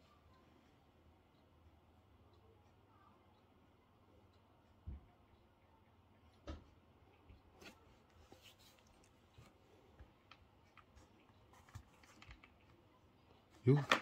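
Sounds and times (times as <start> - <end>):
faint handling clicks and taps: 6.2 - 12.9.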